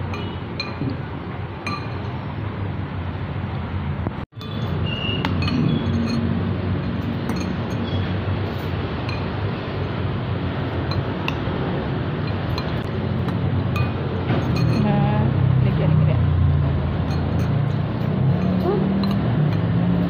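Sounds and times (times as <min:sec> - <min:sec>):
metal spoons clinking on ceramic bowls: 0:00.0 - 0:01.0, 0:01.6 - 0:02.3, 0:04.4 - 0:08.1, 0:09.0 - 0:10.0, 0:10.8 - 0:11.5, 0:12.2 - 0:15.3, 0:17.0 - 0:19.8
steady background noise: 0:00.0 - 0:20.0.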